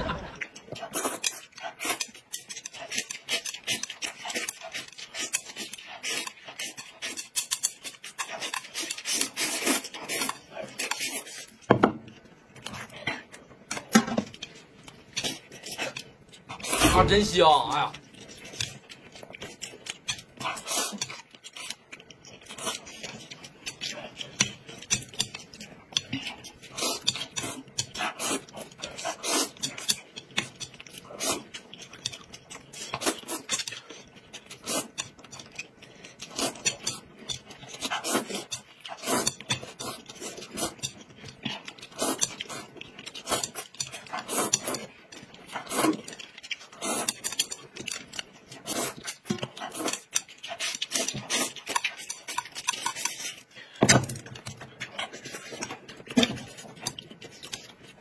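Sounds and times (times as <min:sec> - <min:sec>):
noodles slurped and chewed: 0:00.0 - 0:58.0
chopsticks clicking against plate: 0:00.6 - 0:11.1, 0:18.1 - 0:53.4.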